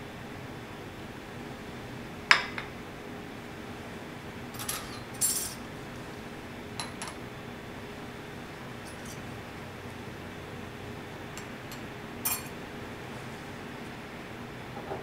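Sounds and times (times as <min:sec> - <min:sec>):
cutlery rattling: 0:04.6 - 0:05.6, 0:11.7 - 0:12.5
tableware clinking: 0:04.6 - 0:05.6, 0:06.8 - 0:07.2, 0:11.4 - 0:12.6.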